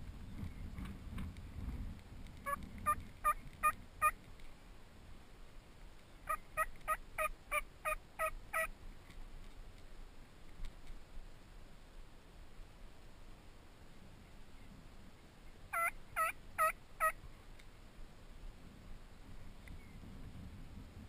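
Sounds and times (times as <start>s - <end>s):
turkey yelps: 6.3s - 8.7s, 15.7s - 17.2s.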